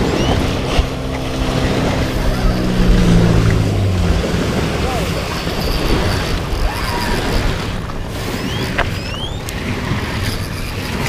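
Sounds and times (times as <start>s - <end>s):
wind buffeting microphone: 0.0s - 11.0s
short rising chirps: 8.3s - 9.5s.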